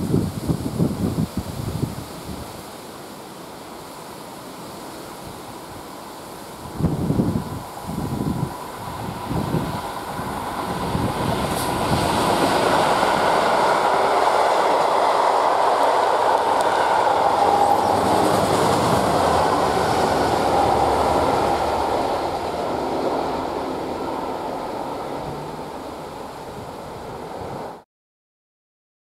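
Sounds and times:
train wheels on rails: 4.5s - 27.8s
diesel locomotive engine: 4.9s - 27.8s.

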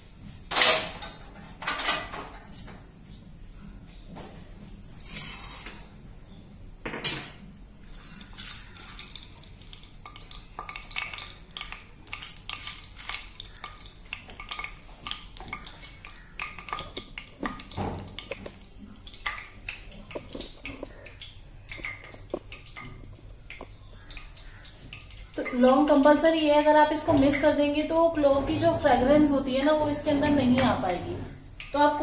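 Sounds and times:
kitchenware clicks and scrapes: 0.4s - 2.8s, 4.4s - 6.0s, 6.8s - 7.4s.

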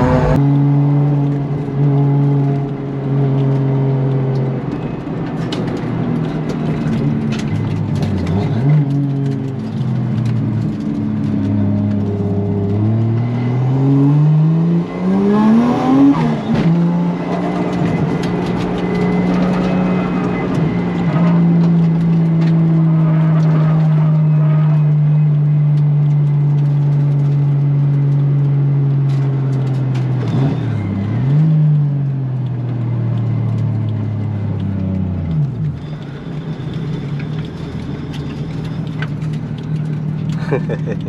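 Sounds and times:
car engine revving: 0.0s - 2.7s, 6.2s - 25.3s.

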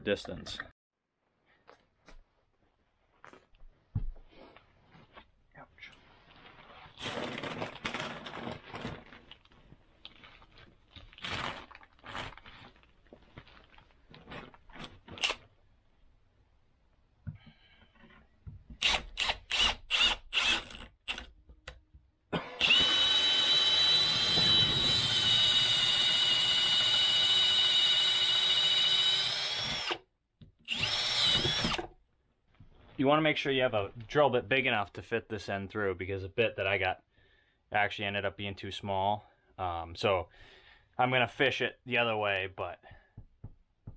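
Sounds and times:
handling and rustling: 1.6s - 15.6s
cordless drill boring into wood: 18.8s - 21.3s, 22.5s - 30.0s, 30.7s - 31.9s.

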